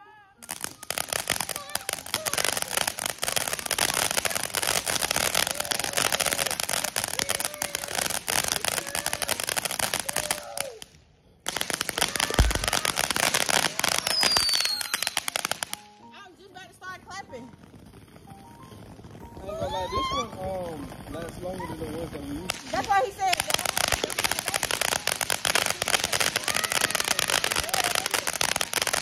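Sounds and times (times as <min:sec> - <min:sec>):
firework crackling and hissing: 0:00.0 - 0:29.0
falling whistle: 0:14.0 - 0:15.1.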